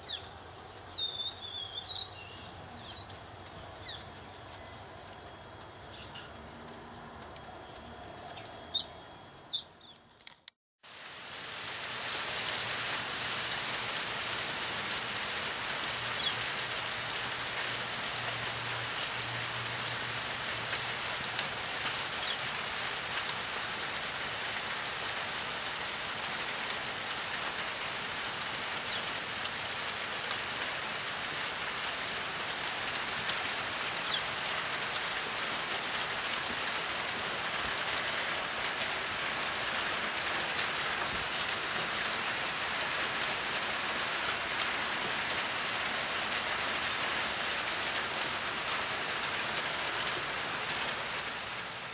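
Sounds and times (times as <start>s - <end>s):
steady rain falling: 0.0s - 9.6s, 10.8s - 51.9s
raindrops ticking: 12.4s - 51.9s.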